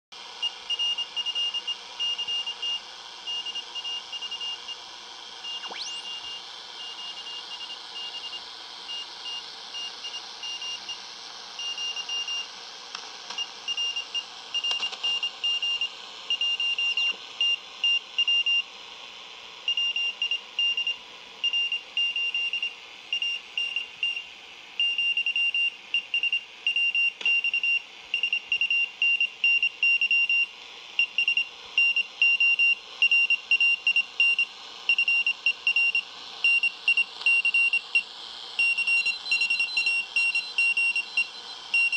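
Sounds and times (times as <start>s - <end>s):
radio static hiss: 0.2s - 24.7s
morse code beeps: 24.8s - 38.0s, 38.6s - 41.9s.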